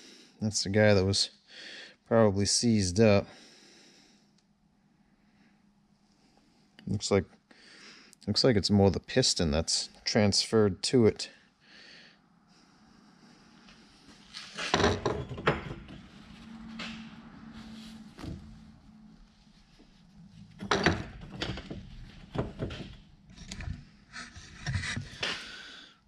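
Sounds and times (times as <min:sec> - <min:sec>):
metal parts clunking on a workbench: 0:14.4 - 0:16.0, 0:20.6 - 0:23.8.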